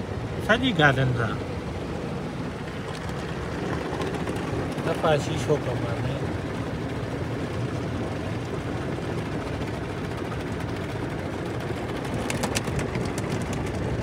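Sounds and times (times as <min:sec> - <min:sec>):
sharp ticks and slaps: 0:12.0 - 0:13.9.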